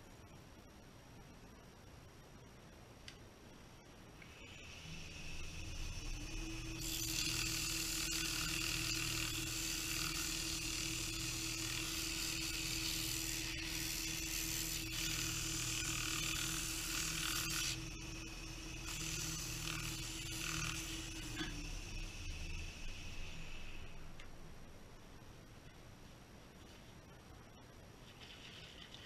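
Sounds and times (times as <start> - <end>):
wood lathe humming: 4.3 - 24.1.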